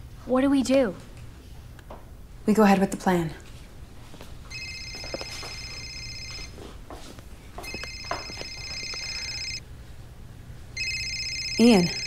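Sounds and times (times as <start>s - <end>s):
phone ringtone: 4.5s - 6.6s, 7.6s - 9.6s, 10.8s - 12.0s.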